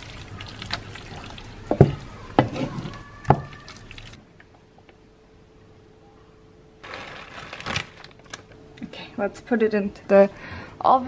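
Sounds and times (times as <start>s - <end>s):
faint steady hum: 3.0s - 11.0s.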